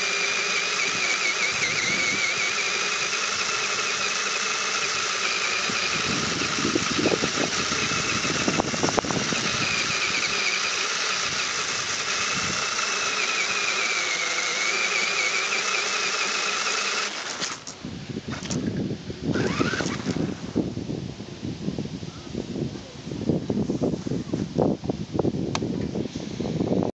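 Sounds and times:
electric motor and gears whining: 0:00.0 - 0:20.9.

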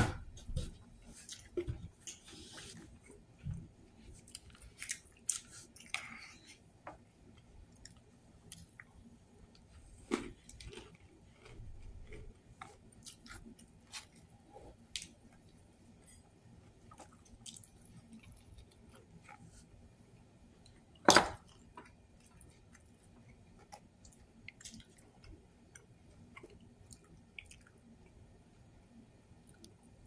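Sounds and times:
person chewing food: 0:04.0 - 0:19.8, 0:20.7 - 0:28.2.

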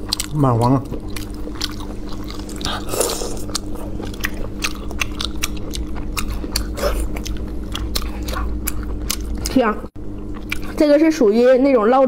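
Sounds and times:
steady low hum: 0:00.0 - 0:12.0
wet chewing smacks: 0:00.1 - 0:09.7.

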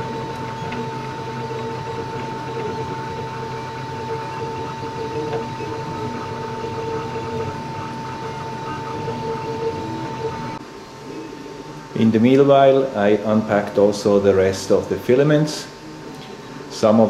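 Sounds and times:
stepper motors whining: 0:00.0 - 0:10.6
steady high-pitched tone: 0:00.0 - 0:12.0.

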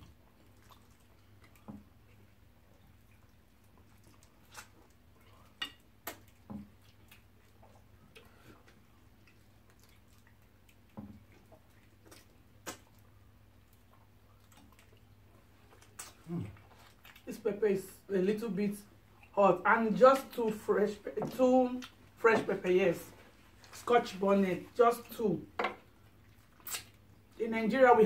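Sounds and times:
wet mouth clicks and smacks: 0:03.9 - 0:13.1, 0:26.5 - 0:27.0.

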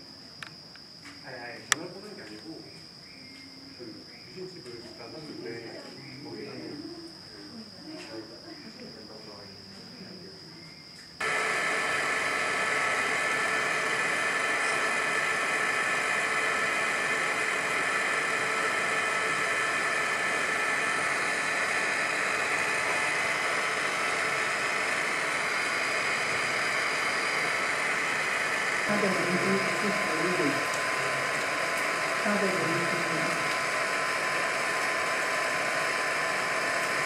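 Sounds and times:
insect trill: 0:00.0 - 0:37.0
steady mechanical whir: 0:00.0 - 0:37.0.

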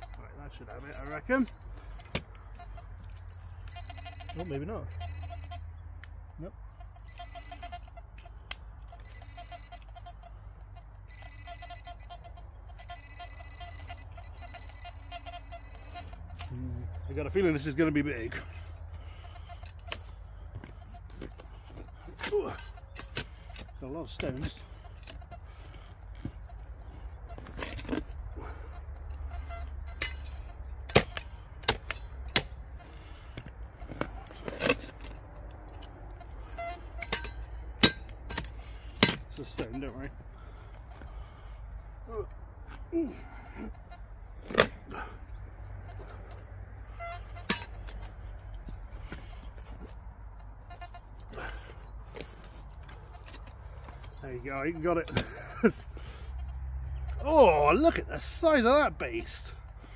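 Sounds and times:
metal detector pinpointer beeping: 0:00.0 - 0:02.9, 0:03.5 - 0:33.2
spade clinking on stones: 0:37.0 - 0:39.6.

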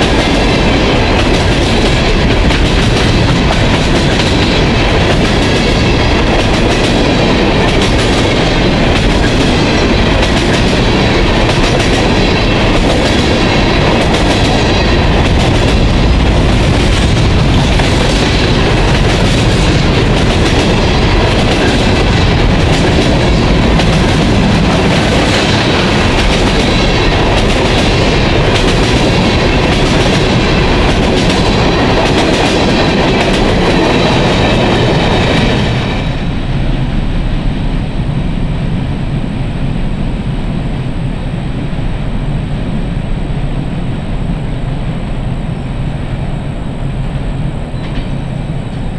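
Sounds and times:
train wheels clicking over rail joints: 0:00.0 - 0:36.2
rumble and rattle of train cars: 0:00.0 - 0:48.9.

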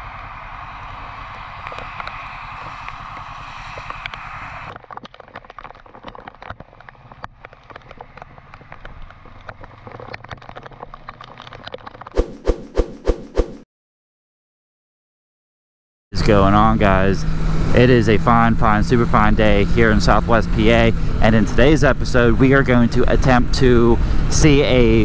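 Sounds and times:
heavy rain pattering on camera: 0:04.7 - 0:12.2
motorcycle engine running low: 0:16.2 - 0:25.0.

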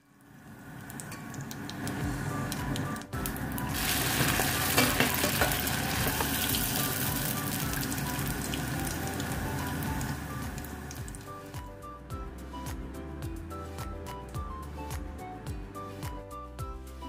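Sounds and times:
background music: 0:01.7 - 0:17.0
rice sizzling in hot oil: 0:03.2 - 0:11.3.

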